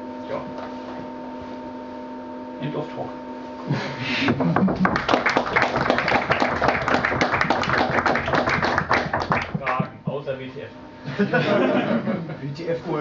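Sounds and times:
audience applauding: 0:04.6 - 0:09.9.

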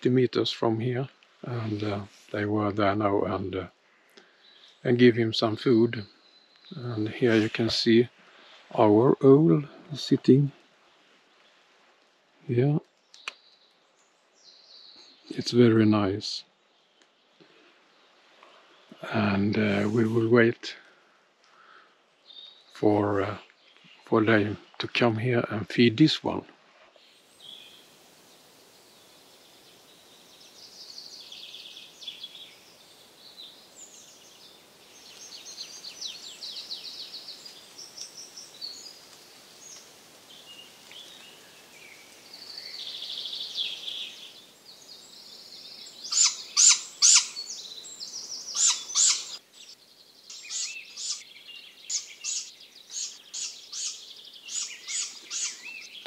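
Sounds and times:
owl chick begging calls: 0:46.0 - 0:56.0.

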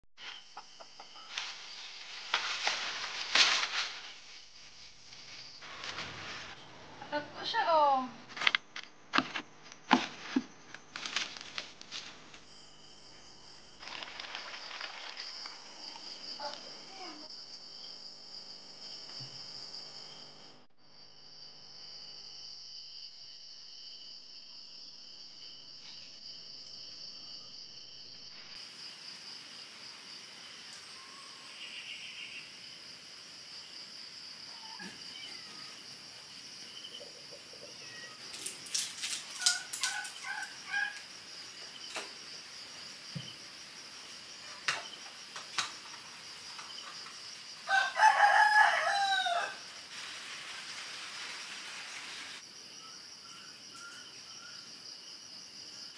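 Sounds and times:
rooster crowing: 0:47.6 - 0:49.8.

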